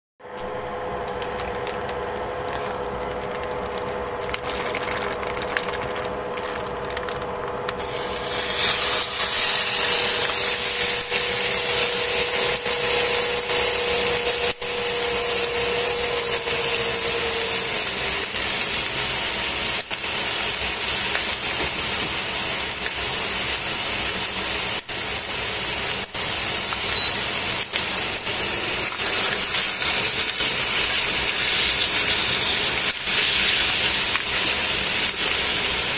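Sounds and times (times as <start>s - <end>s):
steady hum: 0.2s - 22.1s
chicken sizzling in a pan: 7.8s - 35.9s.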